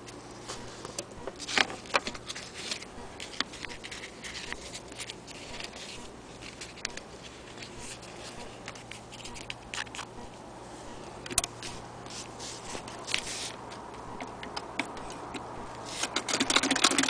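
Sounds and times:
stiff sheet crinkling: 0.0s - 10.2s, 10.8s - 14.0s.

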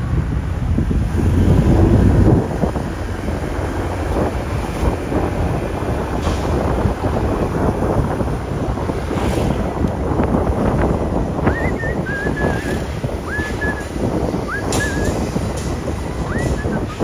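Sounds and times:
road noise: 0.0s - 17.0s
wind buffeting microphone: 0.0s - 17.0s.

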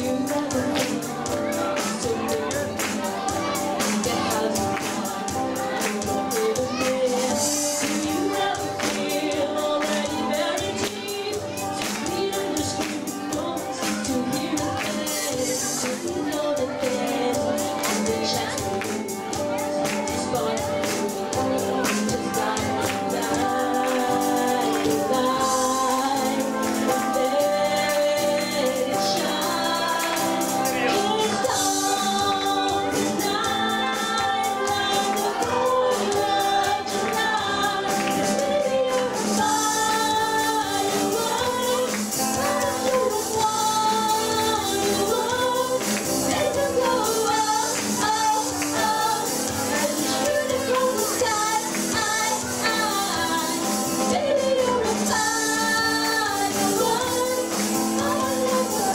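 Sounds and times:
acoustic and electric guitar: 0.0s - 58.9s
percussion rhythm: 0.0s - 58.9s
women singing: 0.0s - 58.9s.

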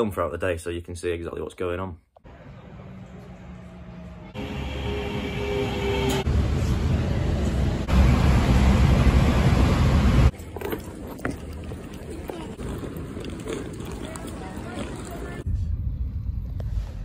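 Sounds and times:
train whine along platform: 2.3s - 10.3s
rumble aboard moving train: 2.8s - 10.3s.

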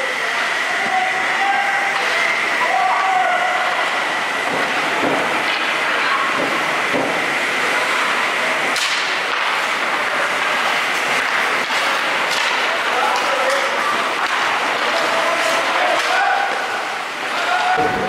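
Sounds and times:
hockey sticks clacking on puck: 4.4s - 7.2s, 8.2s - 18.0s
skates scraping on ice: 4.6s - 17.9s
sharp crack: 8.6s - 16.6s.

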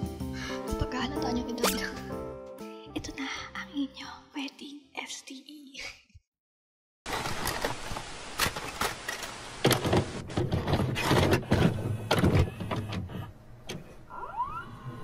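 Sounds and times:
tape hiss: 7.1s - 10.2s.

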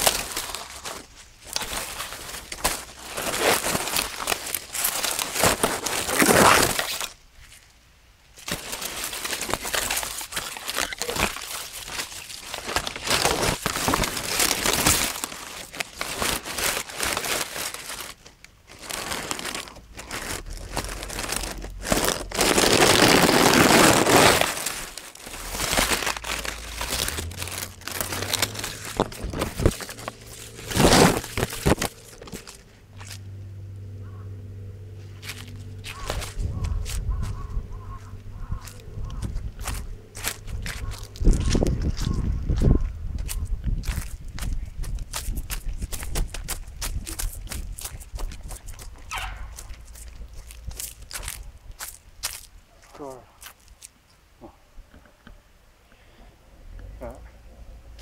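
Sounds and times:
dry grass rustling and crackling: 0.0s - 54.3s
grass brushing against microphone: 19.2s - 33.3s.

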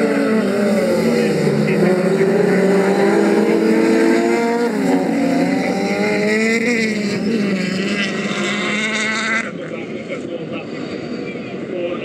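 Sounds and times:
race car engines running hard: 0.0s - 12.0s.

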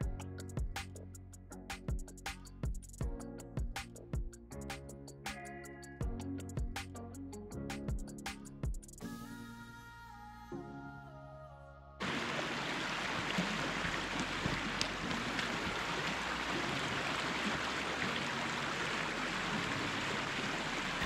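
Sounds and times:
stream water rushing: 12.0s - 21.0s.

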